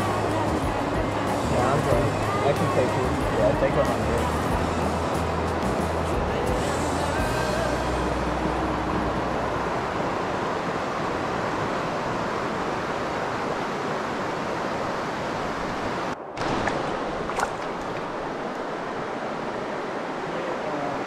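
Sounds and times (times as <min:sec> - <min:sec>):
faint water splashing: 0:00.0 - 0:21.0
rushing stream over rocks: 0:00.0 - 0:21.0.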